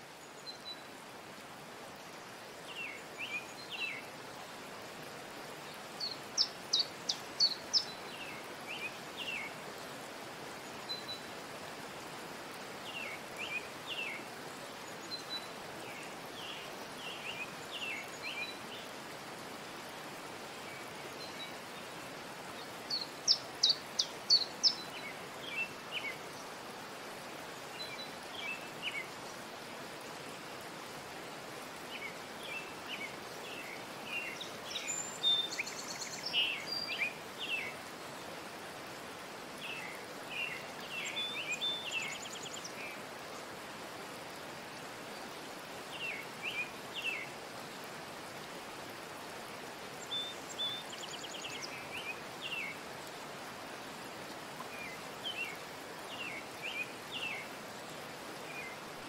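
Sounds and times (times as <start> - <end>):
steady background hiss: 0.0 - 59.0
small birds chirping: 2.0 - 11.4, 19.8 - 26.7, 31.8 - 38.2, 50.0 - 53.2.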